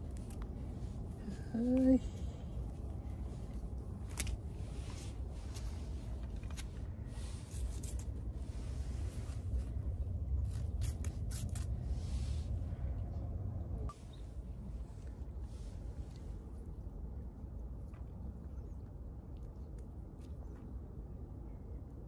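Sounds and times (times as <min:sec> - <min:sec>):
cat scratching on concrete: 0:03.4 - 0:12.6.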